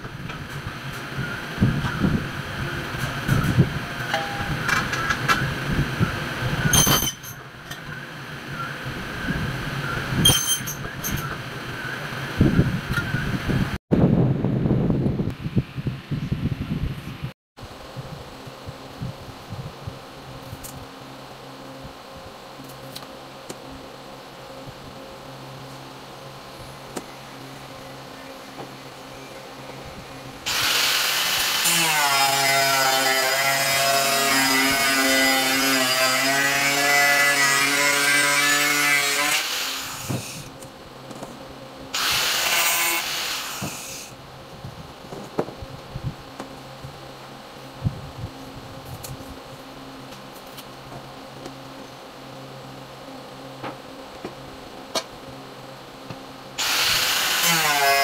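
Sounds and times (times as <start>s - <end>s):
steady mechanical hum: 0.0s - 58.0s
angle grinder cutting metal: 30.5s - 40.5s, 42.0s - 44.1s, 56.6s - 58.0s.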